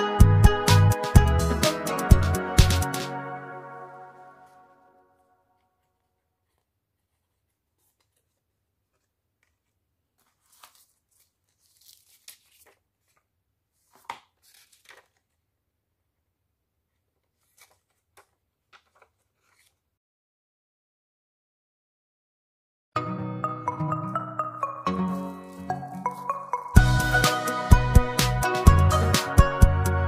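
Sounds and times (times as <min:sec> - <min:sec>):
paper rustling and crinkling: 0:05.6 - 0:15.5, 0:16.9 - 0:19.9, 0:25.1 - 0:26.4.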